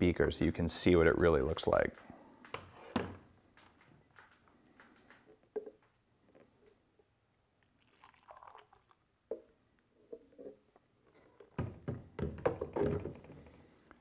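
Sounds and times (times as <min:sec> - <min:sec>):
coffee pouring into a glass: 0:07.7 - 0:09.0.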